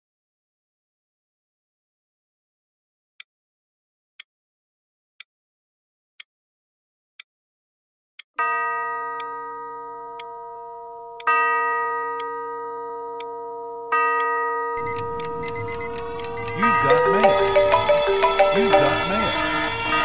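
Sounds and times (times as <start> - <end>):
bell-like chime: 11.3 - 20.0
clock ticking: 14.8 - 19.8.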